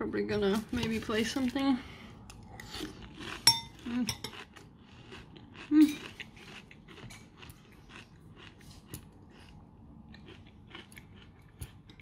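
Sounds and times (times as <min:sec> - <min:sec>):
crunchy chewing: 0:02.5 - 0:12.0.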